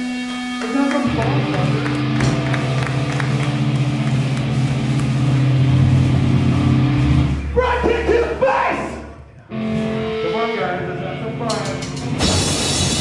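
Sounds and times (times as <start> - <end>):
distorted guitar chord: 0.0 - 7.6, 9.4 - 13.0
drum and cymbal hits: 11.5 - 13.0.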